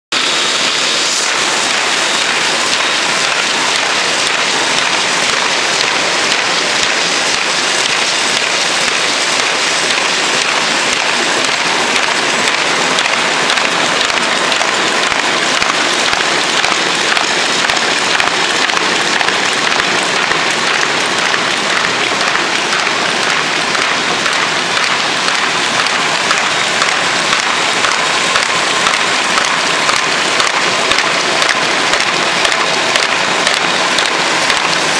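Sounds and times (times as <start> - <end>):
paper folder machine rattling: 0.1 - 34.9.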